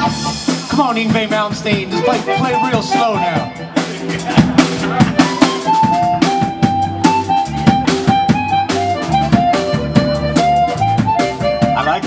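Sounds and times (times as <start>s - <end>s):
drum-kit beat: 0.0s - 12.0s
electric bass: 0.0s - 12.0s
amplified harmonica: 1.8s - 4.3s, 5.0s - 12.0s
electric guitar: 2.0s - 12.0s.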